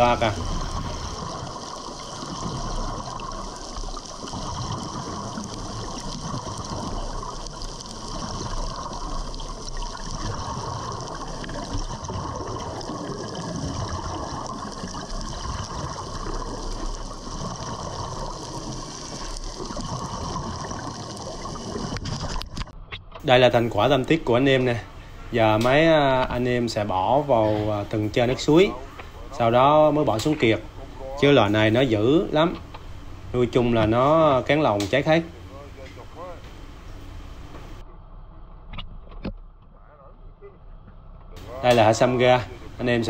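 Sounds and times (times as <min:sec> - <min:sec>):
water rushing and bubbling underwater: 0:00.0 - 0:33.8.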